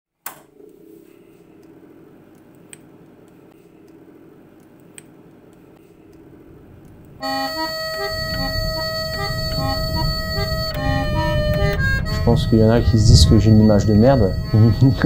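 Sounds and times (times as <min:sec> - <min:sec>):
faint clicks and crackles: 0:00.2 - 0:12.2
ambient music drone: 0:06.1 - 0:15.0.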